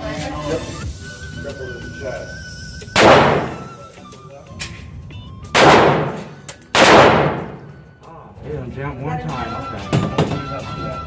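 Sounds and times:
pistol shots echoing indoors: 0:03.0 - 0:03.8, 0:05.6 - 0:07.8.

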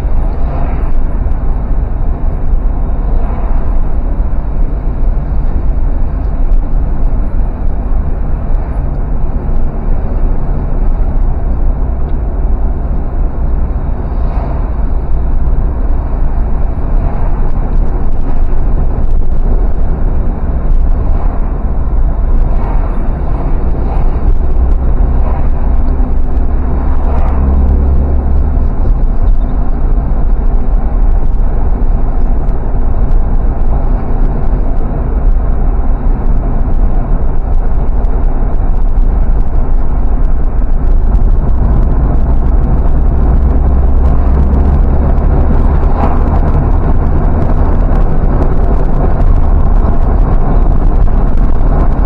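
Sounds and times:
car engine and road noise: 0:00.0 - 0:52.0.

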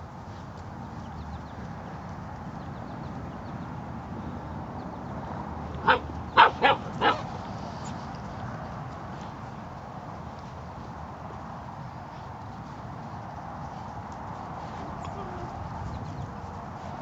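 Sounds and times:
dog barking: 0:05.8 - 0:07.3.

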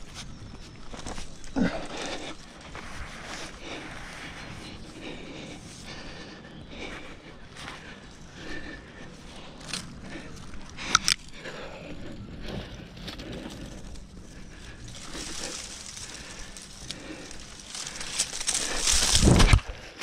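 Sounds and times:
bark twigs and leaves rustling: 0:12.4 - 0:19.8.

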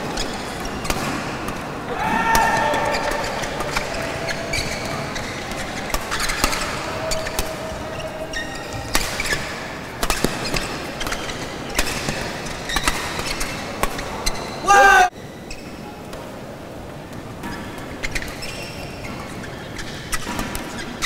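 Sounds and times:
rackets hitting shuttlecock: 0:00.0 - 0:14.5
murmur of indoor hall: 0:00.0 - 0:21.0.

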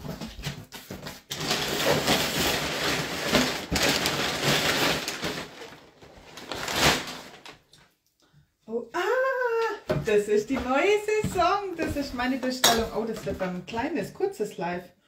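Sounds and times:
packing paper rustling: 0:00.0 - 0:07.8.

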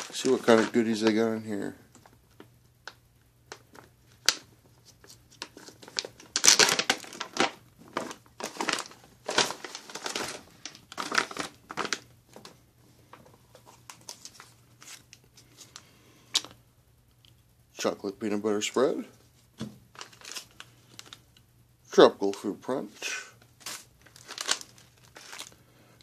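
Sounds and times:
plastic bag tearing: 0:00.0 - 0:01.2, 0:05.4 - 0:12.0, 0:20.0 - 0:21.2, 0:23.6 - 0:25.6
packets crinkling and rustling: 0:00.0 - 0:12.6, 0:19.9 - 0:21.3, 0:23.4 - 0:25.6.

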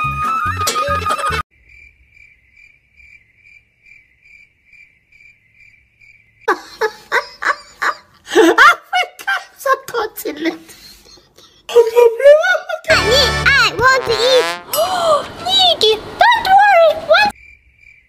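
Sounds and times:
cricket chirping: 0:01.5 - 0:06.5, 0:17.3 - 0:18.0
background music: 0:12.9 - 0:14.8.

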